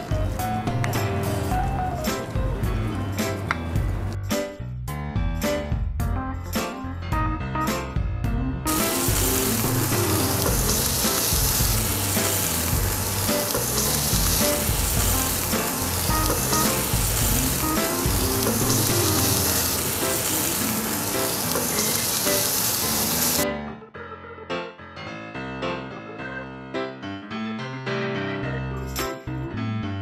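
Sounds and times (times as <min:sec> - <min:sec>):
background music: 0:00.0 - 0:30.0
meat patties sizzling in a pan: 0:08.7 - 0:23.4.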